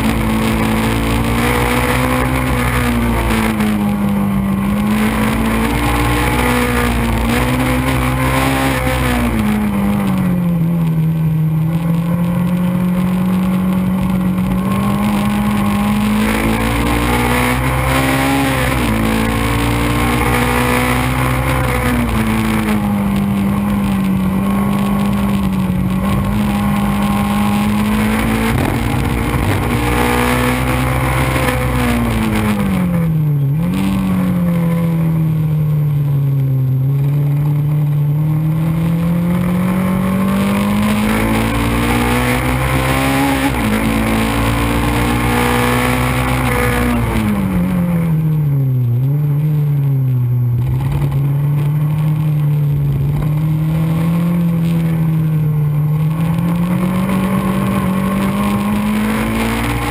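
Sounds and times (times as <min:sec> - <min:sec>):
race car engine revving: 0:00.0 - 0:59.9
wind rushing past microphone: 0:22.8 - 0:33.1.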